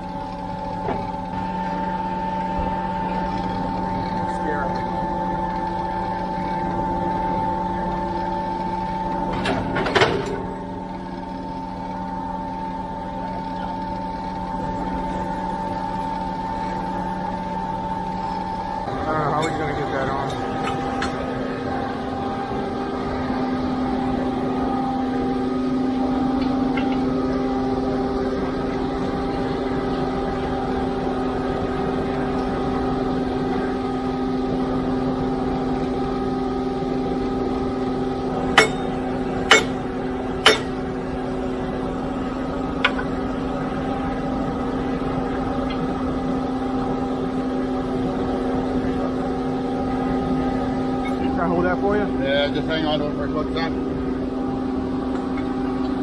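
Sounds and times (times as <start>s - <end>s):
diesel engines humming: 0.0s - 56.0s
steel bar clanking on metal: 38.6s - 39.8s, 40.4s - 40.8s.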